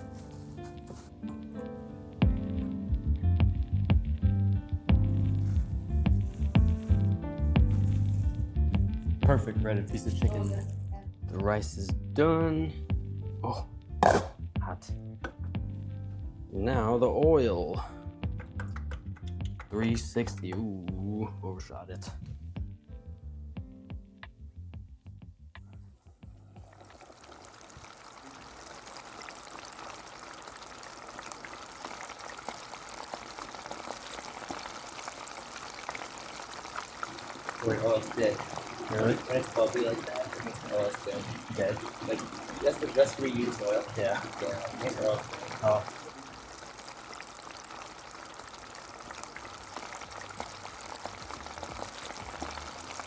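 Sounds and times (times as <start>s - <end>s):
chicken deep-frying in oil: 2.1s - 12.0s, 26.2s - 53.0s.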